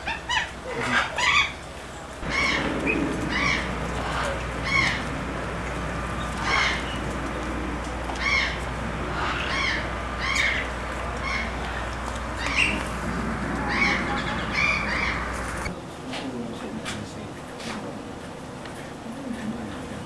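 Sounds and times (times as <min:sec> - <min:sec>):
bird squawking: 0:00.0 - 0:01.6, 0:02.2 - 0:15.7
steady low hum: 0:01.6 - 0:20.0.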